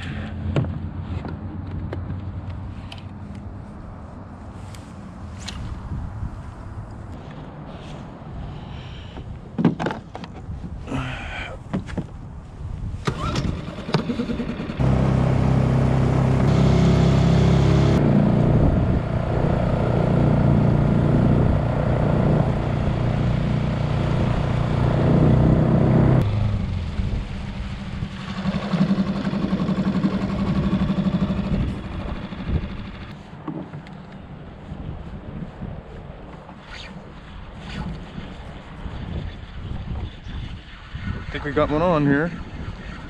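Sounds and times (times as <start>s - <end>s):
outboard motor running: 13.2s - 33.1s.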